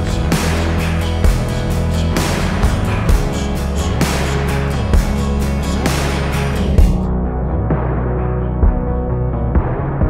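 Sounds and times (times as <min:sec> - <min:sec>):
music with bass and steady beat: 0:00.0 - 0:10.0.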